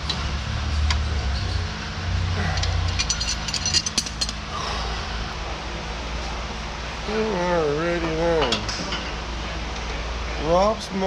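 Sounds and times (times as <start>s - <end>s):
steady low hum: 0.0s - 11.0s
hand tools clinking on steel: 2.6s - 4.4s.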